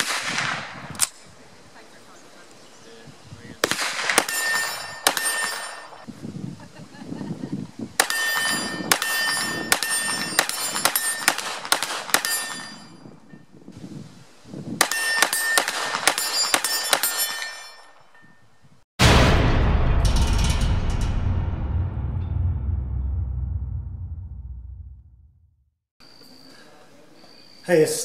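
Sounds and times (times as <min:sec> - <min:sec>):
rapid gunshots: 0:03.6 - 0:05.7, 0:09.7 - 0:12.4
metallic ringing: 0:04.2 - 0:06.0, 0:08.0 - 0:11.4, 0:12.2 - 0:13.5, 0:14.9 - 0:19.2, 0:19.8 - 0:24.6
loud intro music: 0:19.0 - 0:25.6.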